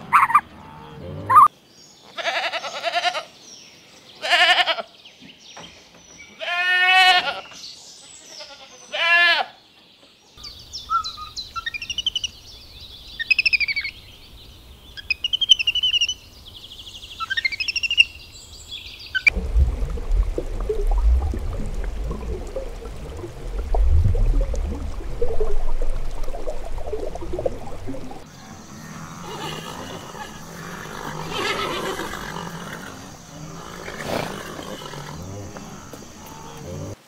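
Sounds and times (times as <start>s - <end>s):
goat bleating: 2.2s - 3.3s, 6.4s - 7.4s, 8.4s - 9.5s
low steady hum: 19.3s - 28.2s.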